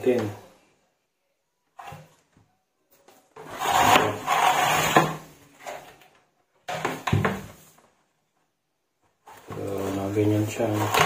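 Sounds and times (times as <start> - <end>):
plastic scraping on pegboard: 3.4 - 6.0, 9.3 - 11.0.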